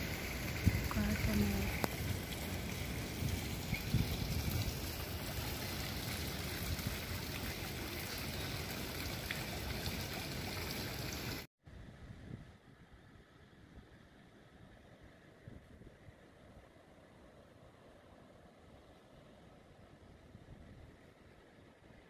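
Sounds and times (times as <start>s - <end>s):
fountain splashing into basin: 0.0s - 11.5s.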